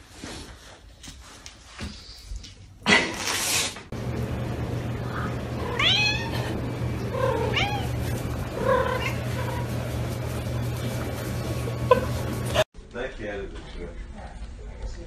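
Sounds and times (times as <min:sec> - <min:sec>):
low hum: 0:03.9 - 0:12.7
cat meowing: 0:05.6 - 0:09.6.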